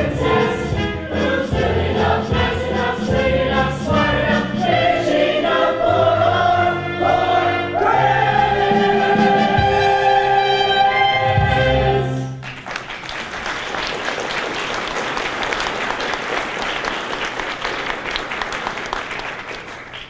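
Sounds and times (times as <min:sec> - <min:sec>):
audience applauding: 0:12.3 - 0:20.0.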